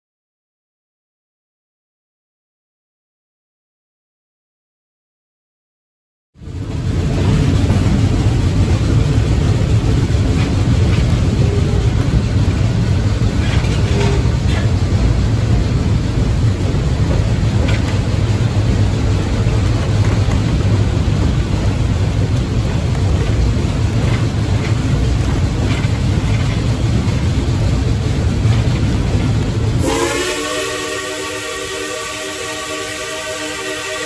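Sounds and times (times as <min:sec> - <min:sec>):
train rumbling along track: 0:06.4 - 0:34.0
steam locomotive whistle chord: 0:29.8 - 0:34.0.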